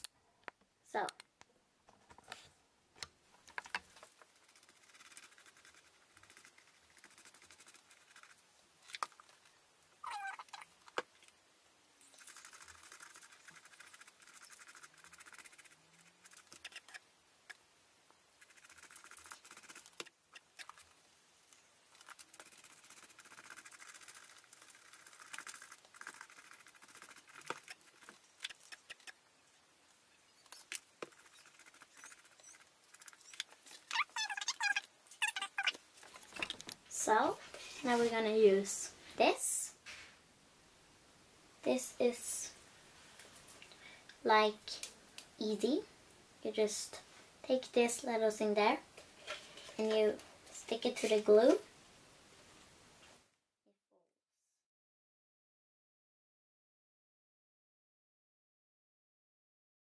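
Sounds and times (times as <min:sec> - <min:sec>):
soft scratchy rubbing: 0:03.9 - 0:08.4, 0:12.0 - 0:17.0, 0:21.9 - 0:29.1, 0:30.2 - 0:34.8, 0:37.0 - 0:40.2, 0:49.1 - 0:51.6.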